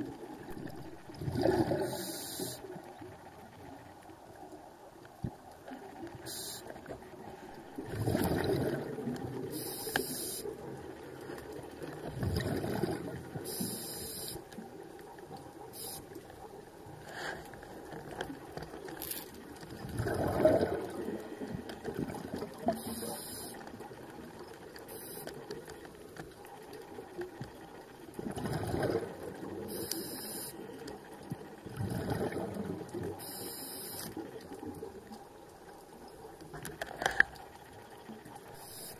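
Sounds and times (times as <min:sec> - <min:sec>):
exhaled bubbles rushing: 0:00.0 - 0:02.1, 0:07.6 - 0:09.5, 0:12.0 - 0:13.4, 0:19.7 - 0:22.7, 0:28.2 - 0:29.7, 0:31.6 - 0:33.2
regulator hissing inhales: 0:01.9 - 0:02.6, 0:09.5 - 0:10.5, 0:13.5 - 0:14.4, 0:22.8 - 0:23.6, 0:29.7 - 0:30.6.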